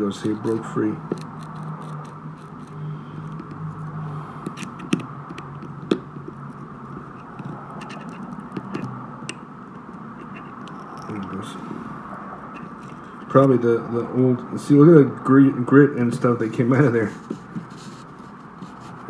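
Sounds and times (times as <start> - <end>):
steady low hum: 0.0 - 19.0
steel pick scraping metal: 10.1 - 10.9.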